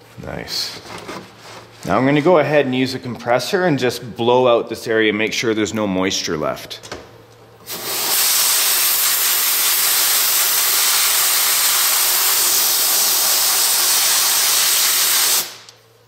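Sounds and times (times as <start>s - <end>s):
compressed air hissing from nozzle: 7.7s - 15.7s.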